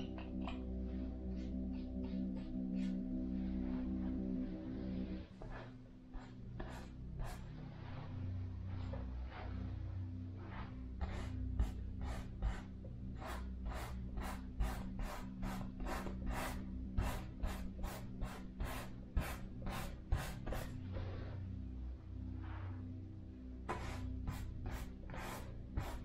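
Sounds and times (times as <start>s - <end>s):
low steady hum: 0.0s - 26.0s
paintbrush scrubbing on canvas: 10.4s - 21.4s.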